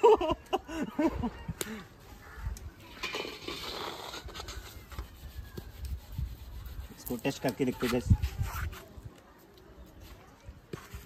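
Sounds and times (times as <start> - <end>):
skimmer scraping salt in a wok: 2.9 - 9.0.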